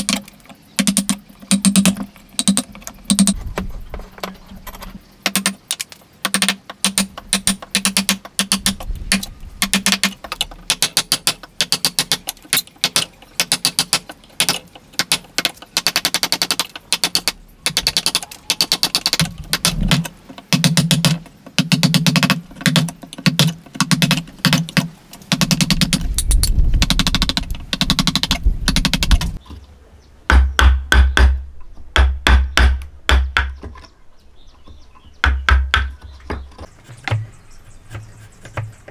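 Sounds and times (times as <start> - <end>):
chisel chopping into wood: 30.3 - 31.4, 32.0 - 33.7.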